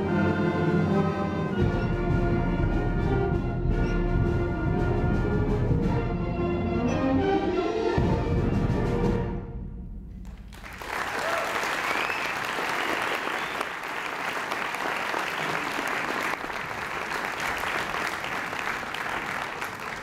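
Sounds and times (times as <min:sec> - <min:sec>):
audience applauding: 0:10.3 - 0:20.0.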